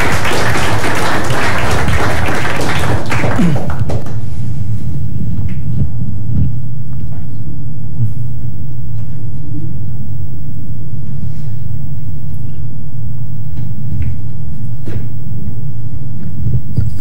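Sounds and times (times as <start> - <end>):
loud low rumble: 1.8 - 16.9.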